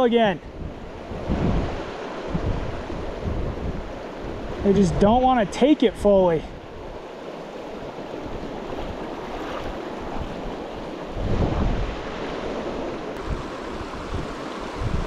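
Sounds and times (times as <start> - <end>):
wind buffeting microphone: 0.4 - 5.4, 6.5 - 15.0
river water rushing: 6.7 - 15.0.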